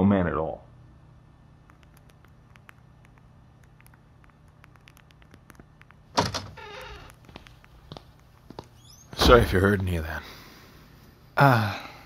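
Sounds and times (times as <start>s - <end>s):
door opening with clack and creak: 6.2s - 7.1s.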